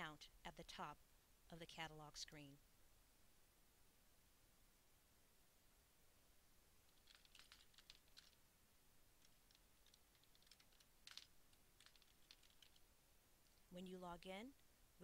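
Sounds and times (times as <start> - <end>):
typing on computer keyboard: 6.9 - 8.4, 9.2 - 12.8.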